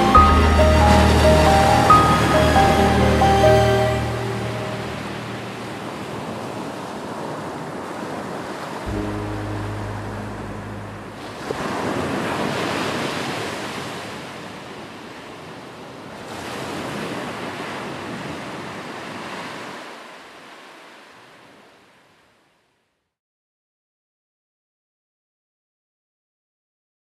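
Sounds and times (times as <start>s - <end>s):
low held note: 0.0s - 6.4s, 8.9s - 12.2s
waves breaking: 0.0s - 22.2s.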